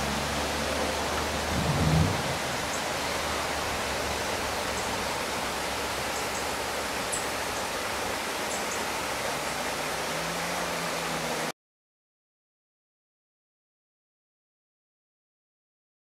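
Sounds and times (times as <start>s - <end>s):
river rushing over boulders: 0.0s - 11.5s.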